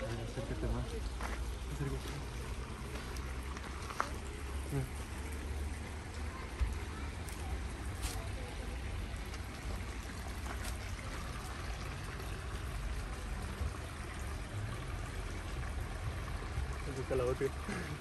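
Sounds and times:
stream trickling: 0.0 - 18.0.

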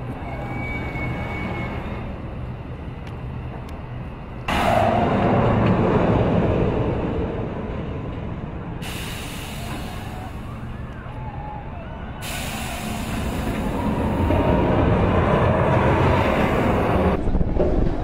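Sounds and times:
roller coaster rumbling on track: 0.0 - 18.0.

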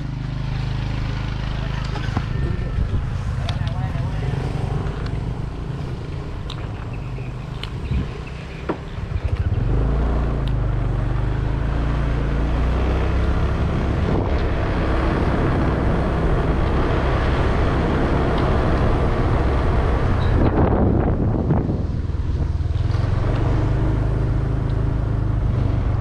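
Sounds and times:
wind rushing: 13.6 - 23.7.

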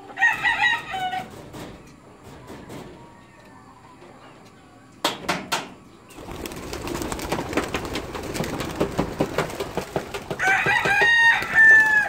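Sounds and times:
pigeon wings flapping: 6.2 - 12.0.

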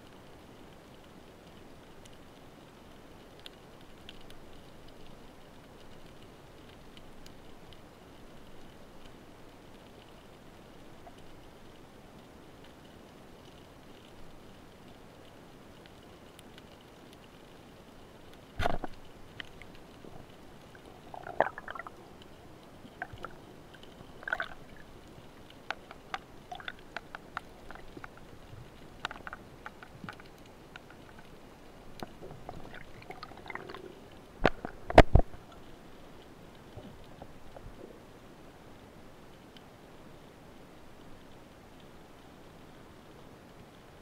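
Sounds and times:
underwater clicks and knocks: 18.6 - 22.3, 25.5 - 31.3, 31.9 - 35.7.

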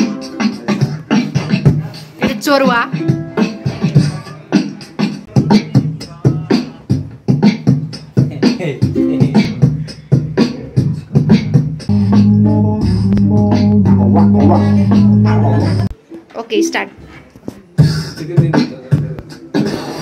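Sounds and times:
beatboxing kick and snare: 0.0 - 16.0, 17.4 - 20.0
low held bass tone: 11.9 - 15.9.

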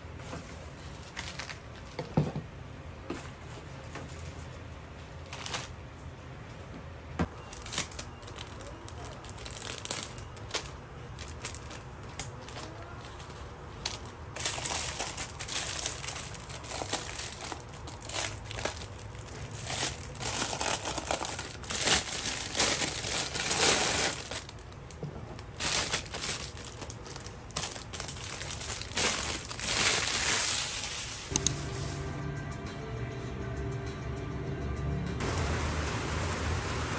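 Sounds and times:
plastic bag crinkling: 7.4 - 31.4.

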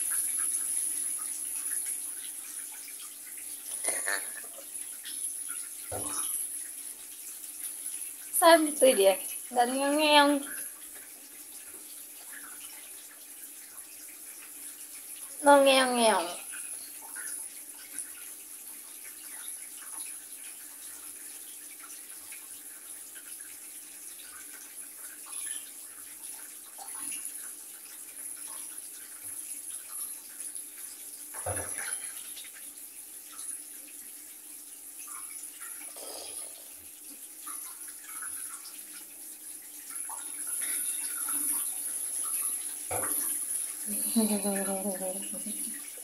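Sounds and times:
shower water running in bathtub: 0.0 - 46.0.

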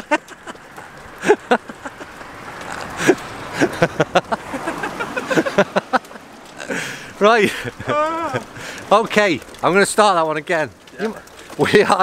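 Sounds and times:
men laughing: 0.0 - 8.8.

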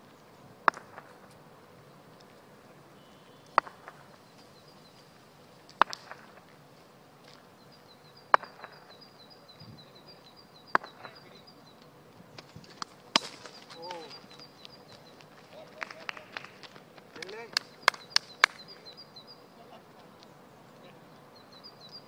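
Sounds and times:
wooden bat knocking on asphalt: 0.6 - 1.3, 3.5 - 4.2, 5.7 - 6.5, 8.3 - 9.0, 10.7 - 11.2, 12.8 - 14.0
bird chirping: 2.5 - 22.0.

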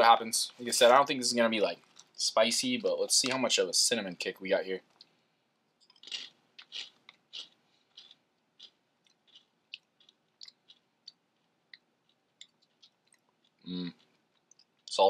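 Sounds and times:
cereal being chewed: 1.8 - 2.2, 5.8 - 15.0.

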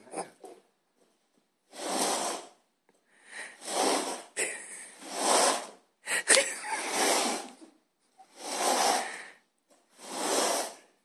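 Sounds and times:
paper cups scraping on tile floor: 1.7 - 2.6, 3.3 - 11.0.

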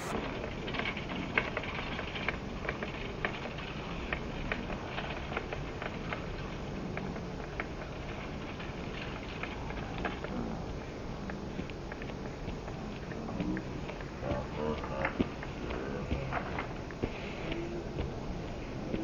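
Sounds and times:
outdoor background noise: 0.0 - 19.0.

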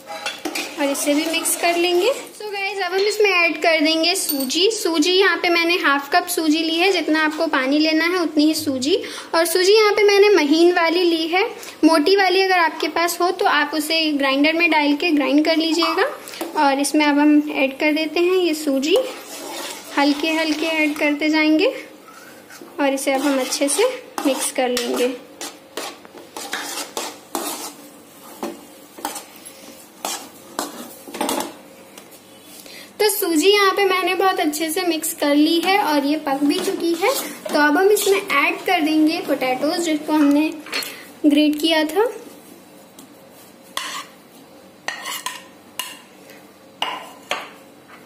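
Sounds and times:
spatula scraping a pan: 0.0 - 2.2, 18.2 - 21.1, 22.1 - 31.4, 35.6 - 39.4, 43.4 - 44.2, 44.9 - 46.0
spoon stirring thick mixture: 18.1 - 21.3, 22.1 - 31.2, 35.4 - 40.8, 43.0 - 44.2.

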